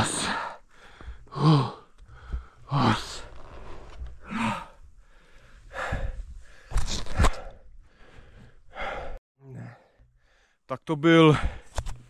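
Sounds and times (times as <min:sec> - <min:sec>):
person gasping breaths: 0:00.1 - 0:03.3, 0:04.2 - 0:10.6.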